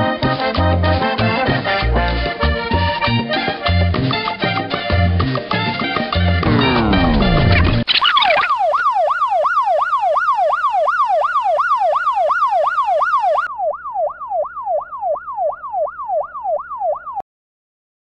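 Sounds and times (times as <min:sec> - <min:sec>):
police siren yelping: 0:06.4 - 0:17.2.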